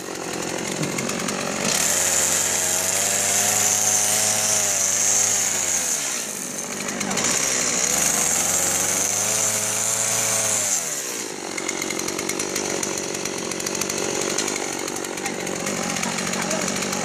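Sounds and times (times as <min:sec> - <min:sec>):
chainsaw cutting and idling: 0:00.0 - 0:17.0.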